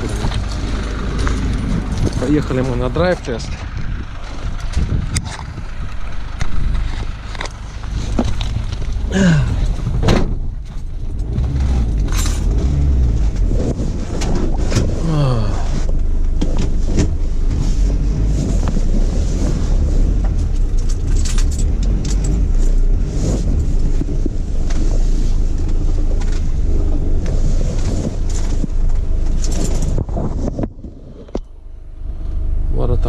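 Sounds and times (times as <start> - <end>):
diesel van engine rumble: 0.0 - 33.0
clicks and rattles: 20.2 - 24.9, 27.2 - 31.5.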